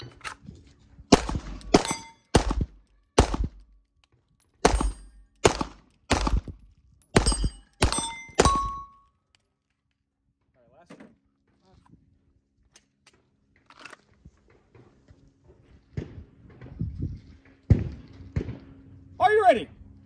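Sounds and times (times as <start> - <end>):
handgun shots: 1.1 - 3.7, 4.6 - 6.5, 7.2 - 8.9
steel plate target ringing: 1.7 - 2.3, 4.7 - 5.3, 7.2 - 9.0.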